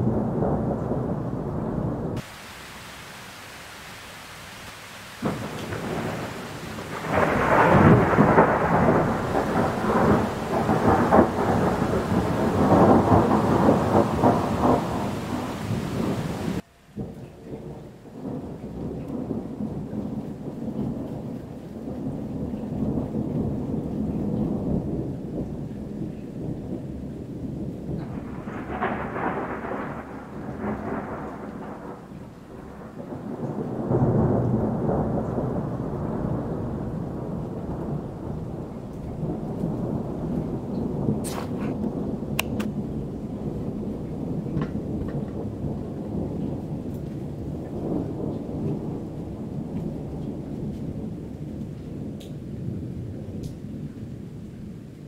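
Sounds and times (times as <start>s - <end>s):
thunder rumbling: 0.0s - 55.0s
heavy rain hiss: 2.2s - 20.4s, 28.1s - 44.5s.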